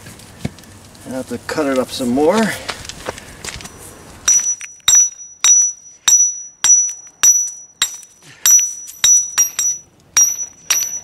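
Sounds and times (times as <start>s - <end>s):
hammer striking steel chisel: 4.3s - 11.0s.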